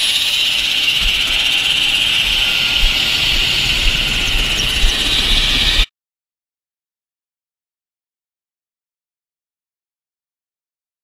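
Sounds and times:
helicopter engine and rotor rushing: 0.0 - 5.9
wind buffeting microphone: 0.3 - 5.9.

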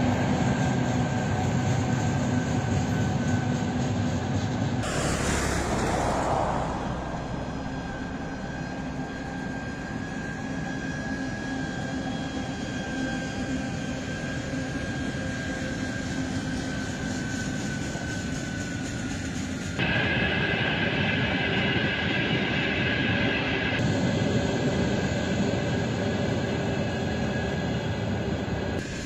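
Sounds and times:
freight train rumbling on bridge: 0.0 - 14.0
high whine: 4.8 - 11.8.

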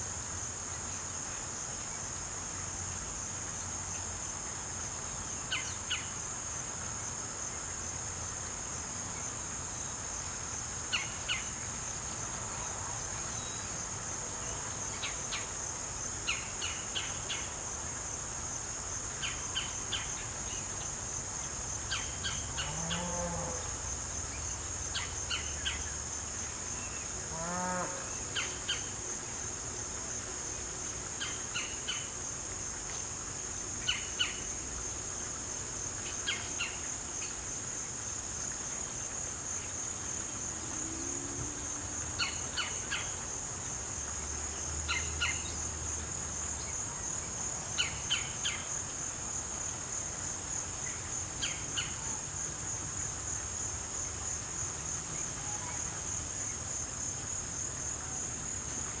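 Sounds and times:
high-pitched insect chorus: 0.0 - 59.0.

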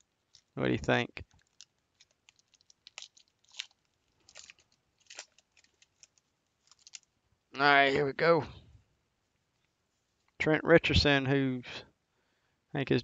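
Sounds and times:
foil pack crinkling: 0.0 - 0.6, 1.2 - 7.2.

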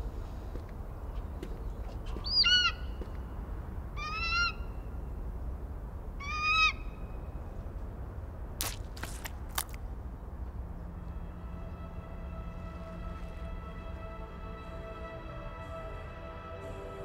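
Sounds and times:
low steady rumble: 9.3 - 17.0.

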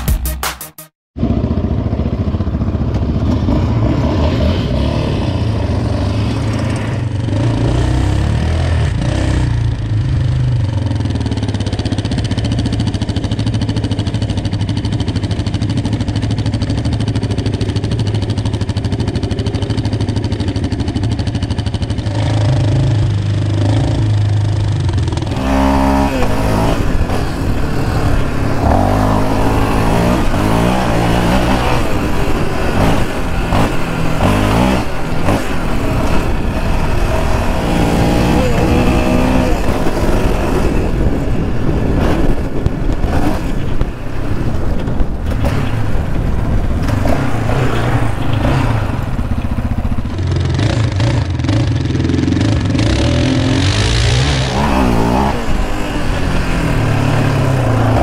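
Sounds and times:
atv engine running: 1.2 - 58.0
engine revving up: 25.2 - 41.2, 46.8 - 58.0.

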